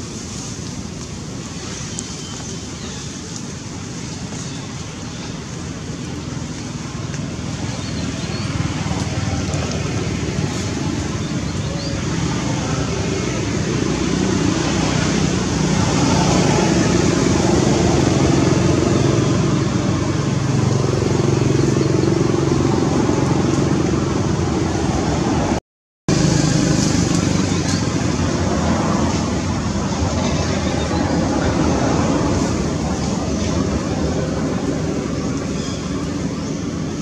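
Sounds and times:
motor traffic drone: 0.0 - 37.0.

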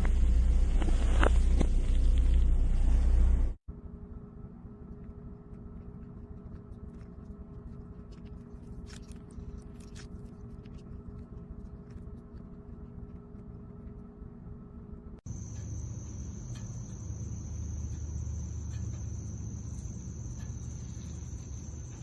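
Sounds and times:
steady low hum: 0.0 - 22.0
wet squishes of fruit pulp: 7.8 - 12.4.

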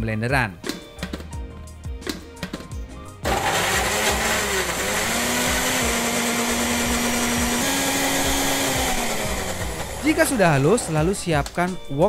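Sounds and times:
blender grinding: 3.2 - 11.2.

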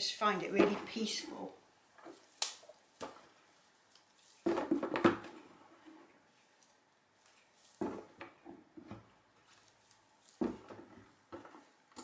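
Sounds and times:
objects knocking on worktop: 4.4 - 5.4.

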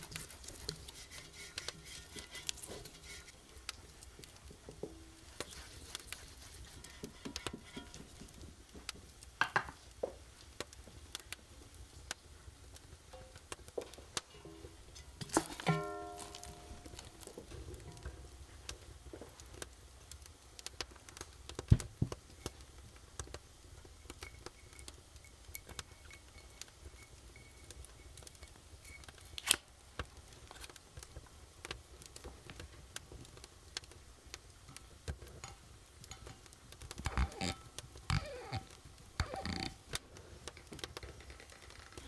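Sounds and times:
fingers scratching bottle capsule: 0.0 - 3.4, 37.0 - 39.8
corkscrew scraping into cork: 37.0 - 39.8.

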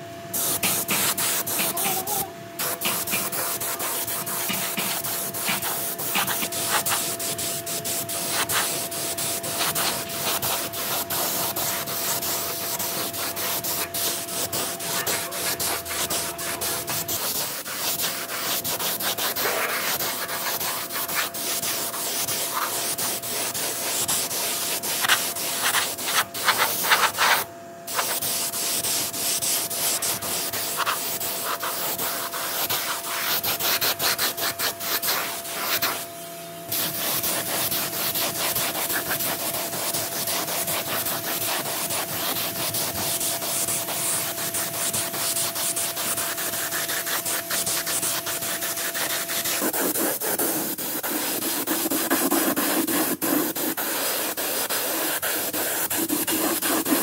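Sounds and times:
spray gun hissing: 0.3 - 36.0.

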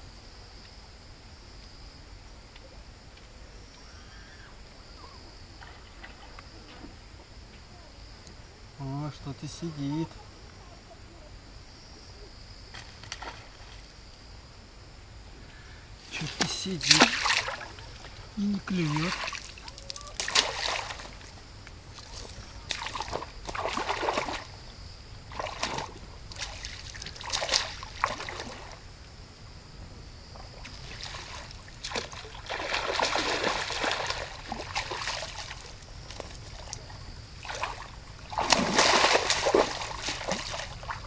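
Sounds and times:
fish splashing at water surface: 16.2 - 21.3, 22.0 - 24.5, 25.3 - 28.7, 30.6 - 41.0.

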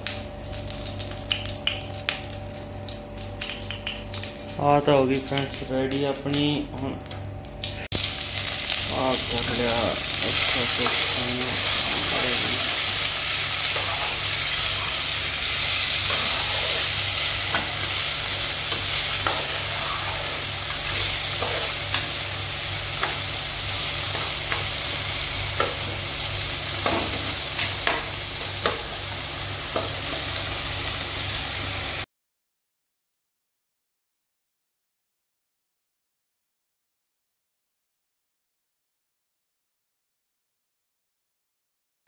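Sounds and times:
vegetables sizzling in oil: 7.9 - 32.1.

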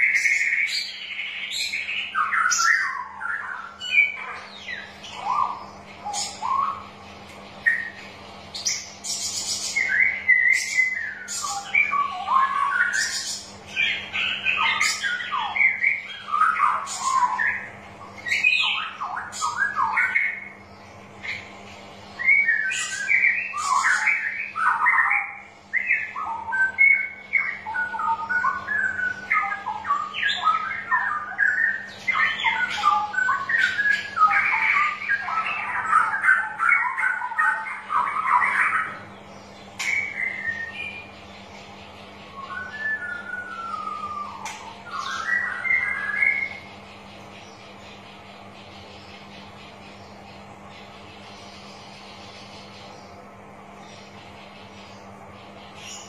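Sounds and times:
bird warbling song: 0.0 - 56.0
faint steady hum: 0.0 - 56.0.

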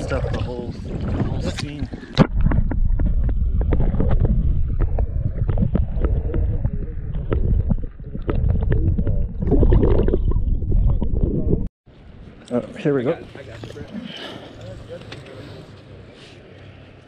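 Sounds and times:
muffled underwater water rumble: 0.0 - 11.7.

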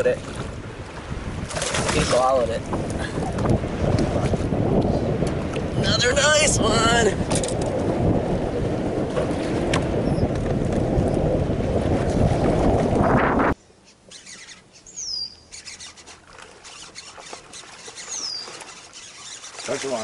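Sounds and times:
wind buffeting the microphone: 0.0 - 13.6
high falling bird whistles: 14.1 - 16.0, 17.9 - 19.4.

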